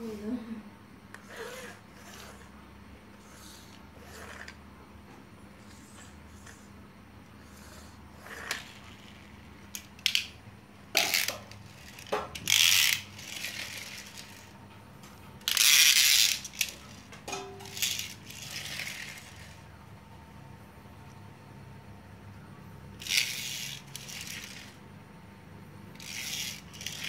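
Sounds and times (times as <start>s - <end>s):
toy wheels rolling on tile: 1.2s - 2.5s, 3.2s - 4.6s, 7.6s - 14.6s, 15.4s - 19.7s, 23.0s - 24.9s, 25.9s - 27.0s
toy cars clicking and knocking: 8.2s - 14.5s, 15.4s - 19.6s, 23.0s - 24.8s, 25.9s - 27.0s.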